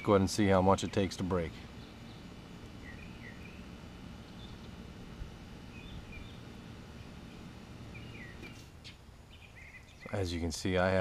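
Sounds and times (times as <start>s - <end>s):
low steady rumble: 0.0s - 11.0s
small bird chirping: 0.8s - 4.8s, 5.7s - 7.2s, 7.8s - 10.2s.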